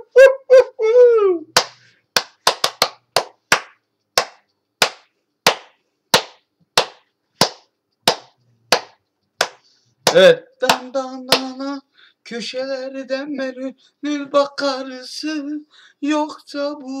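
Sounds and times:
hands clapping a beat: 1.5 - 11.7.

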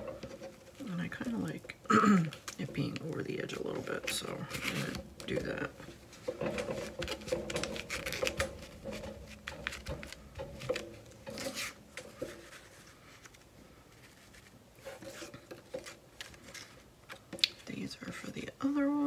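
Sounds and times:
paper rustling and rubbing: 2.3 - 16.9.

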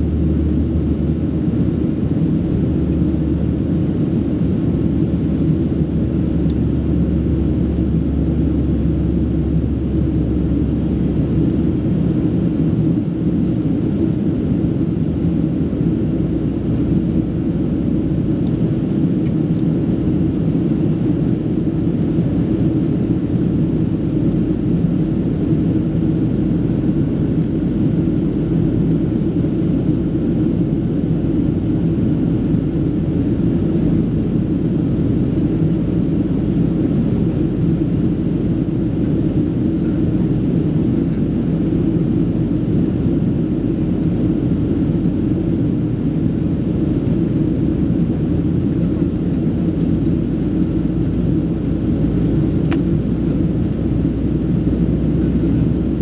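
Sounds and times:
airplane cabin engine rumble: 0.0 - 56.0.

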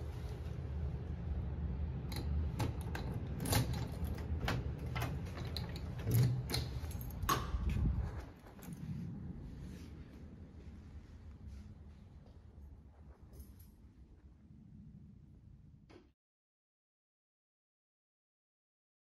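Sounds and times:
keys jingling: 2.7 - 7.3.

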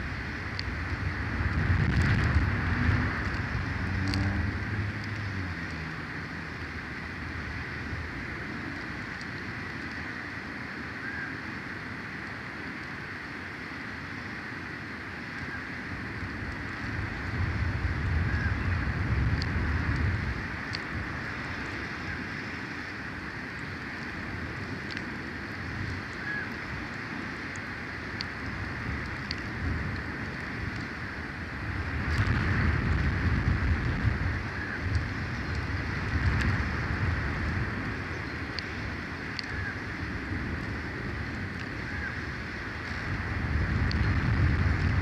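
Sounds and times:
wind blowing over microphone: 0.0 - 45.0
faint high ticks: 0.4 - 1.0, 3.1 - 6.1, 9.1 - 10.1, 19.2 - 20.9, 23.5 - 25.1, 26.0 - 31.0, 34.8 - 36.6, 37.4 - 39.8.

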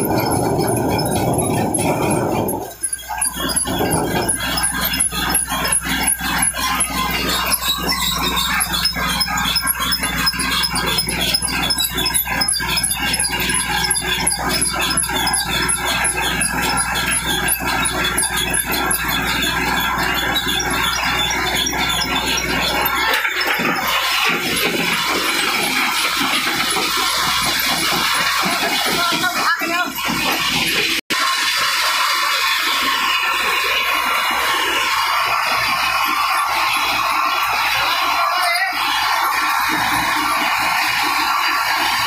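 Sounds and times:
rock clattering and grinding: 0.0 - 30.9
high whine: 0.0 - 31.3
motors humming: 0.0 - 42.0.

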